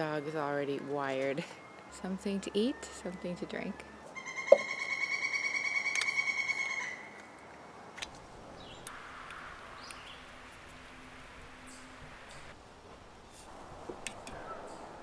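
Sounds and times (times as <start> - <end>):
high pulsing animal call: 4.2 - 7.0.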